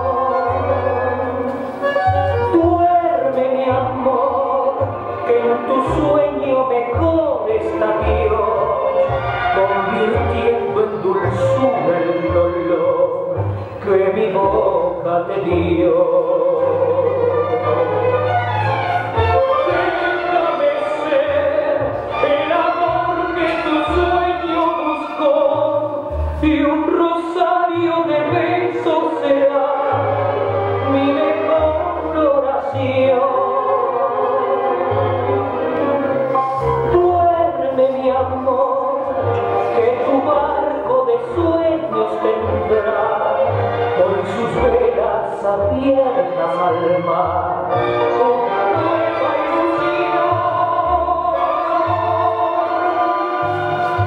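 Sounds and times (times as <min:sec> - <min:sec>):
tango music with singer: 0:00.0 - 0:54.0.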